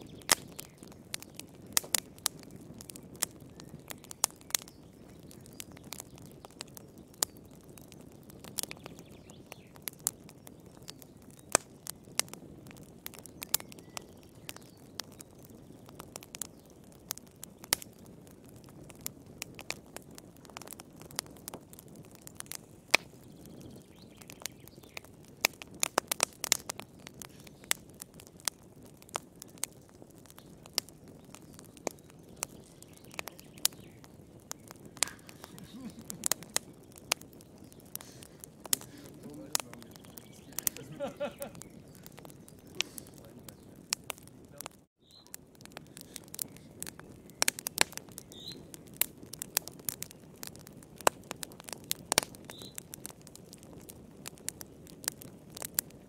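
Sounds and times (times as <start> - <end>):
wood fire crackling: 0.0 - 56.0.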